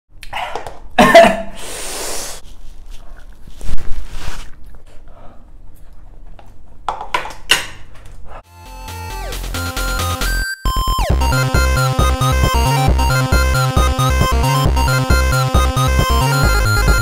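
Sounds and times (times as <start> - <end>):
man sniffing: 1.4 - 2.4
hissing breath: 1.5 - 2.4.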